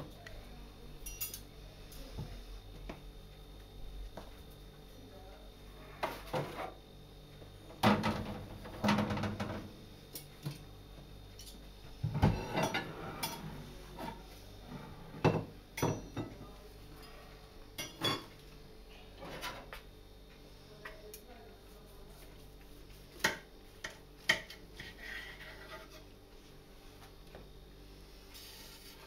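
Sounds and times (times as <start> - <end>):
metal tray and utensils clattering: 12.2 - 14.2.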